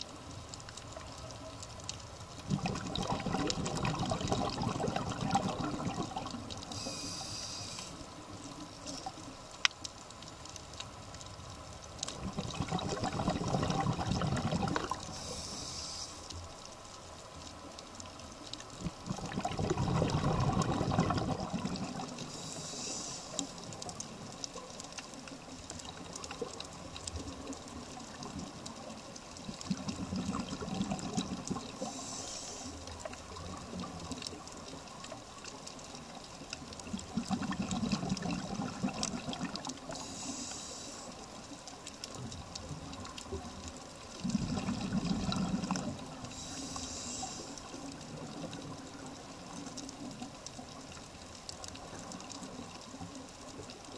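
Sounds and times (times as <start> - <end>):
bubbling regulator exhalations: 2.5 - 7.3, 12.1 - 15.5, 18.8 - 22.9, 29.6 - 32.2, 36.9 - 40.2, 44.2 - 47.2
hissing regulator inhale: 6.7 - 8.2, 15.1 - 16.4, 22.2 - 23.6, 31.8 - 32.8, 39.9 - 41.3, 46.3 - 47.8.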